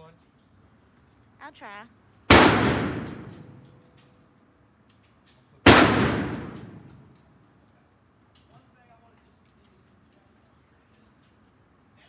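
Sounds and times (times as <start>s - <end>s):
handgun shot echoing indoors: 2.3s - 3.7s, 5.6s - 7.2s.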